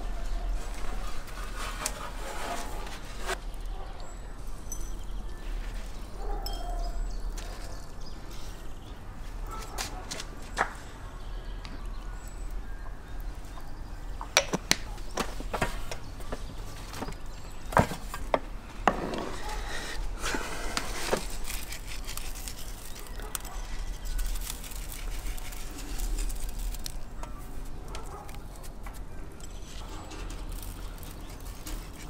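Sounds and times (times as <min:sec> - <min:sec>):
spice rustling: 0:19.3 - 0:32.0.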